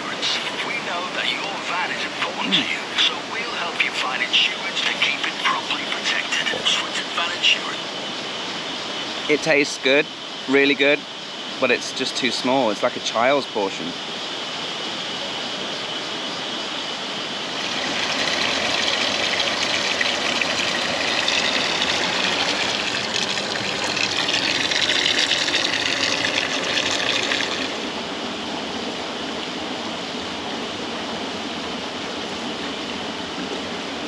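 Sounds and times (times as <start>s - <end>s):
river rushing: 0.0s - 9.4s, 17.3s - 34.0s
tap water pouring into bathtub: 17.6s - 27.8s.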